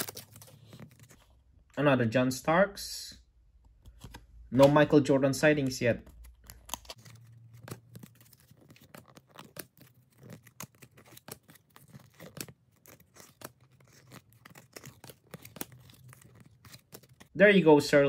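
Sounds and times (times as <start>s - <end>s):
trading cards flipped by hand: 3.8s - 4.9s, 5.6s - 17.3s.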